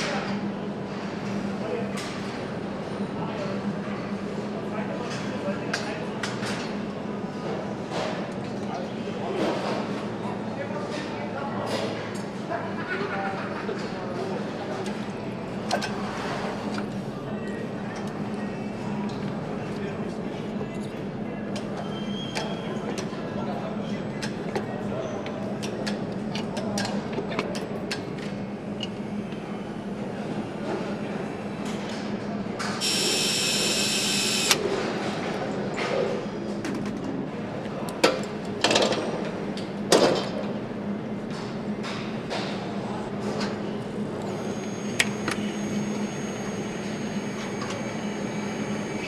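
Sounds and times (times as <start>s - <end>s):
factory machinery hum: 0.0s - 49.0s
steady machine hum: 27.7s - 35.6s, 40.5s - 49.0s.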